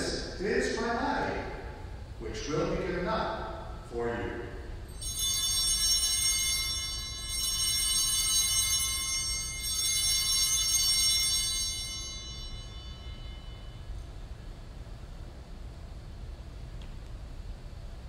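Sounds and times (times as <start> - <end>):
altar bells ringing: 4.8 - 14.5.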